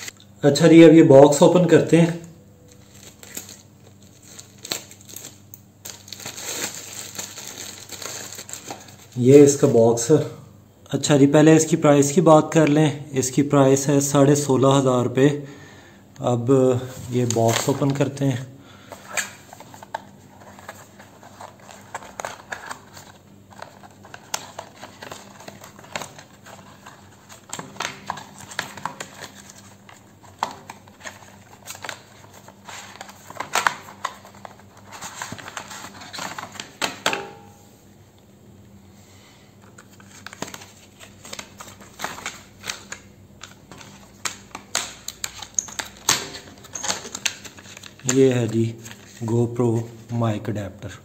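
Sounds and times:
cardboard packaging handled: 0:02.7 - 0:09.2, 0:19.1 - 0:37.1.

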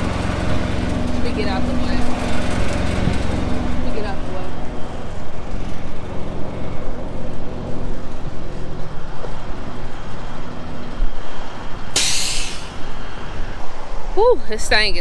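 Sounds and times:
truck engine idling: 0:00.0 - 0:13.3
loud burst of hiss: 0:11.9 - 0:12.8.

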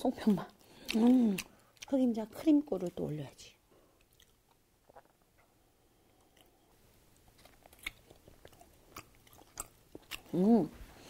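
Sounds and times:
person chewing: 0:00.6 - 0:02.0, 0:04.0 - 0:11.0.

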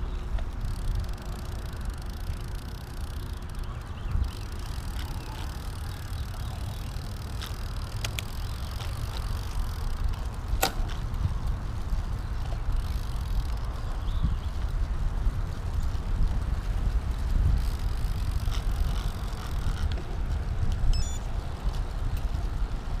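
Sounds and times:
bike tyres rumbling on concrete: 0:00.0 - 0:23.0
sharp clicks: 0:00.3 - 0:09.9.

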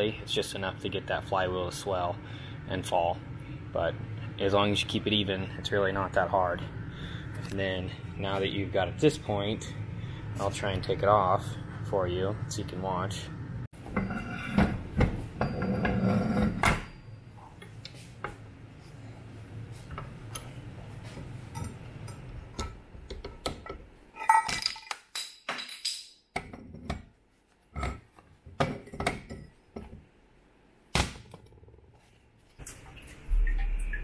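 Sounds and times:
metal knocks and clinks: 0:24.2 - 0:26.4.

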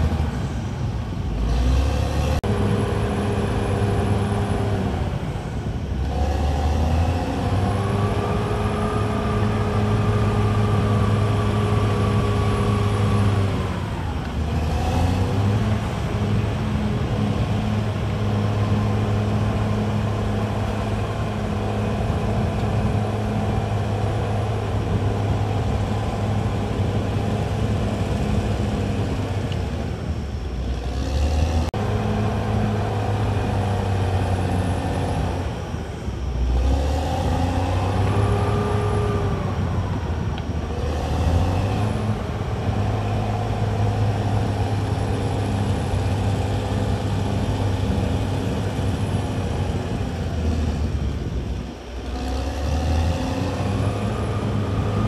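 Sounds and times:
bulldozer diesel engine: 0:00.0 - 0:55.0.

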